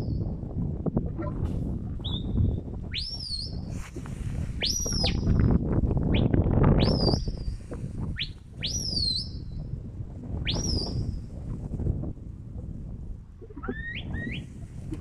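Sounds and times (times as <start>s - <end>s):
wind buffeting microphone: 0.0s - 15.0s
shepherd's high whistles: 6.2s - 7.3s, 8.2s - 9.4s, 10.5s - 11.0s.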